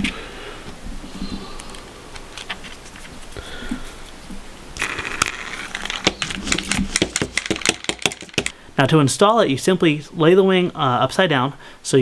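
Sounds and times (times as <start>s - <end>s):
rustling: 0.0s - 8.6s
sharp clicks of small parts: 4.8s - 8.6s.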